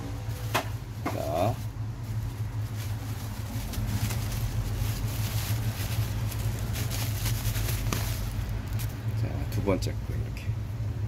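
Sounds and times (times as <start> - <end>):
steady low hum: 0.0 - 11.0
bubble wrap crinkling: 0.4 - 9.2
cardboard box tearing: 3.8 - 8.8.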